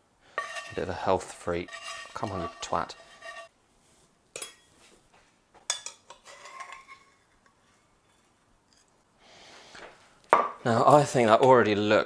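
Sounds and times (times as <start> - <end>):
metal utensil scraping frying pan: 0.3 - 3.5, 5.8 - 8.3.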